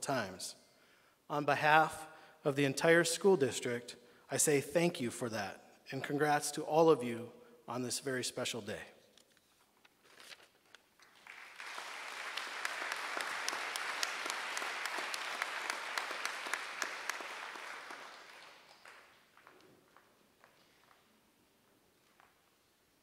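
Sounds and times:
audience applauding: 11.0s - 21.1s.

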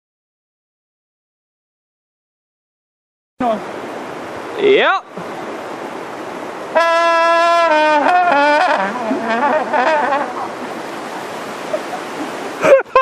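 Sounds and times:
brass-like instrument notes: 6.7s - 10.6s.

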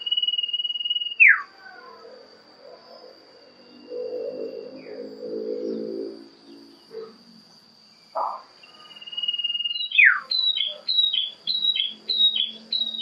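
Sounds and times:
bird singing loudly: 0.0s - 1.5s, 8.6s - 13.0s
high insect drone: 0.0s - 13.0s.

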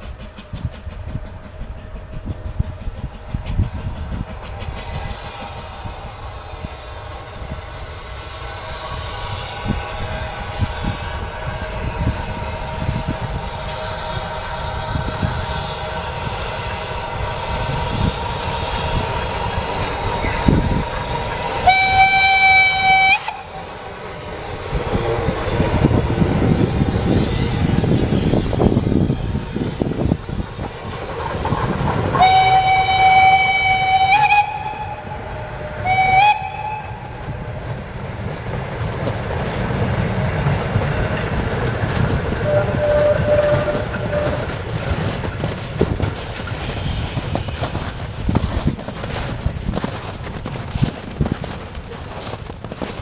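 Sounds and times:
train rumble and rail noise: 0.0s - 53.0s
steam locomotive whistle: 4.7s - 23.7s, 32.1s - 37.2s, 42.4s - 44.6s.

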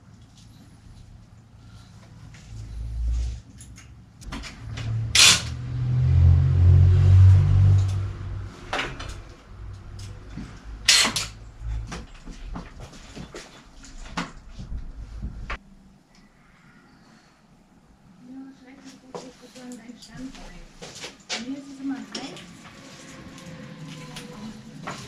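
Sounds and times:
low rumble: 0.7s - 15.8s.

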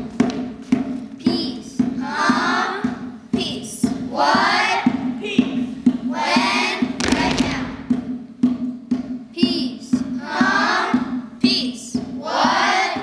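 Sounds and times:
steady beat of knocks: 0.0s - 13.0s
children's choir singing: 1.2s - 7.9s, 9.4s - 13.0s.

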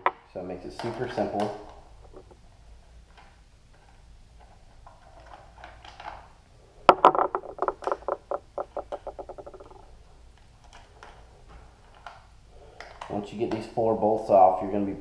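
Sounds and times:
small object bouncing on hard floor: 2.0s - 2.4s, 6.9s - 9.8s.

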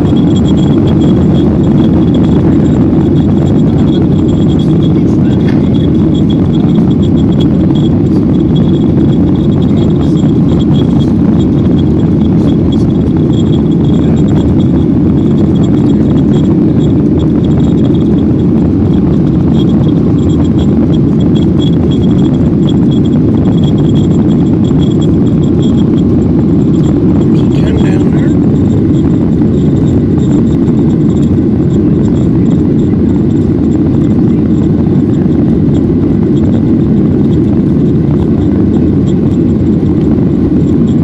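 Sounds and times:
airplane cabin engine roar: 0.0s - 41.0s
faint high whine: 0.0s - 41.0s.

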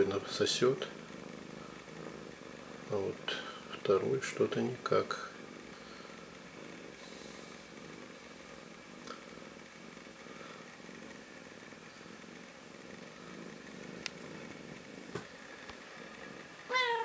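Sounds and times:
cat purring: 0.0s - 17.0s
faint clicks: 14.0s - 14.5s
cat meow: 16.7s - 17.0s.

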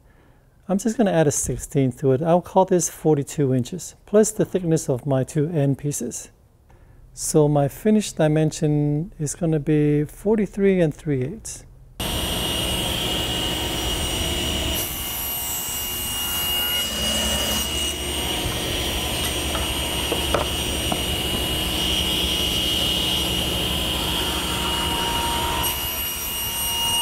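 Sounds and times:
power saw cutting plywood: 12.0s - 27.0s.

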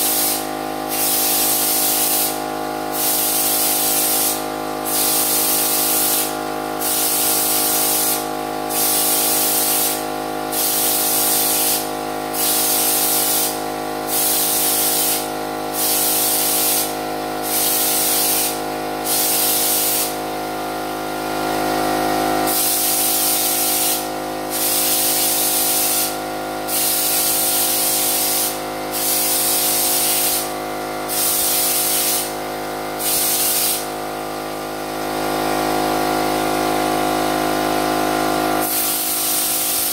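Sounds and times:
spray gun hissing: 0.0s - 20.2s, 22.5s - 30.5s, 31.1s - 32.3s, 33.0s - 33.9s, 38.6s - 39.9s.

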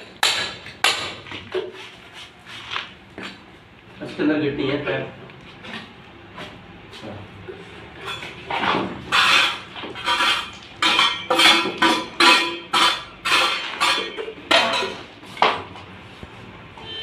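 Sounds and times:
metal tool scraping concrete: 9.1s - 14.1s.

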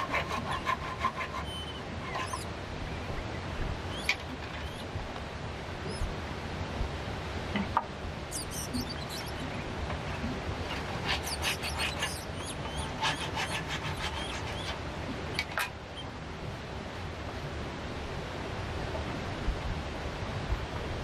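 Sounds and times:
handsaw scratching wood: 0.0s - 2.5s, 8.3s - 9.5s, 10.6s - 14.8s
rushing water: 0.0s - 21.0s.

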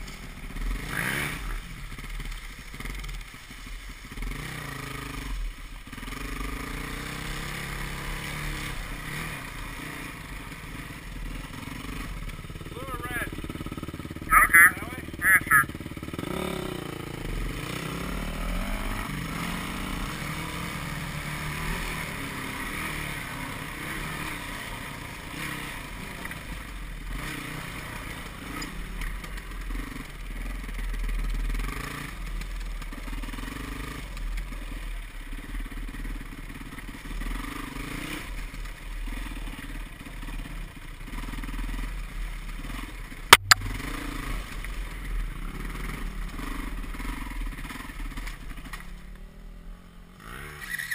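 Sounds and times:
dirt bike engine revving: 0.0s - 3.2s, 4.1s - 50.9s
sharp clack: 43.3s - 44.0s.

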